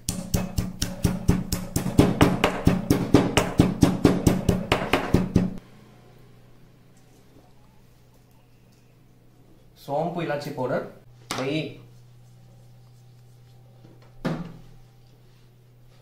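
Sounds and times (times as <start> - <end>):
pestle pounding in stone mortar: 0.0 - 5.6.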